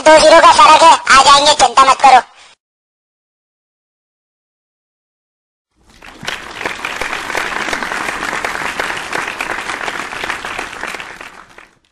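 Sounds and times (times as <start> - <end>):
crowd applause: 5.8 - 11.9.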